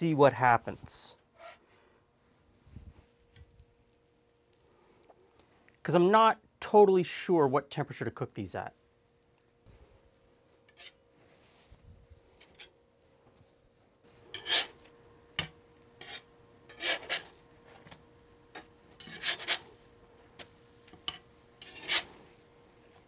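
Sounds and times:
faint steady hum: 0.0s - 23.0s
light sizzling: 0.8s - 23.0s
scraping in frying pan: 1.4s - 1.6s, 10.7s - 11.0s, 14.3s - 14.9s, 15.9s - 17.4s, 18.5s - 19.8s, 20.9s - 22.4s.

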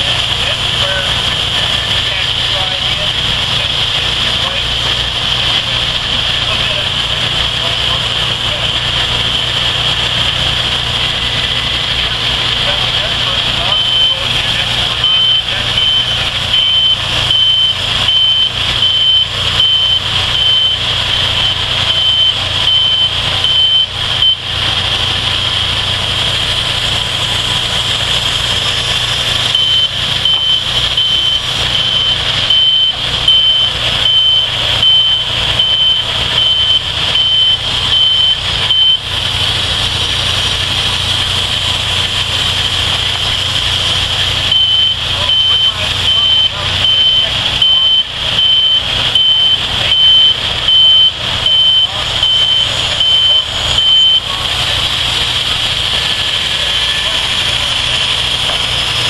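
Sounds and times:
sawmill engines running: 0.0s - 59.0s
backup alarm beeping: 13.6s - 25.7s, 29.4s - 39.1s, 44.4s - 54.5s.

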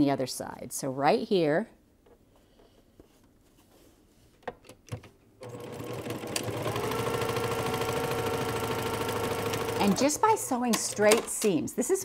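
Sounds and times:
sewing machine stitching: 5.4s - 11.6s.

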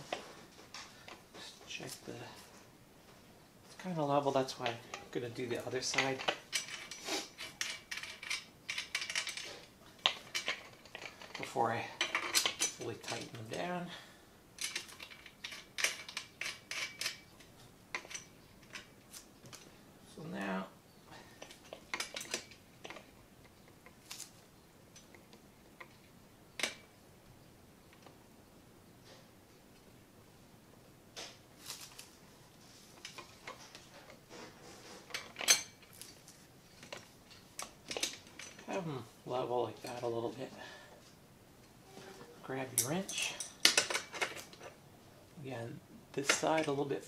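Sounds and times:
light metallic clicks and scrapes: 3.8s - 13.7s, 14.6s - 19.8s, 31.2s - 38.8s, 39.7s - 44.8s.

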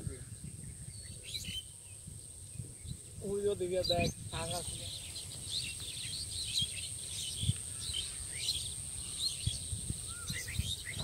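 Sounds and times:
bird chirps: 0.1s - 11.0s.

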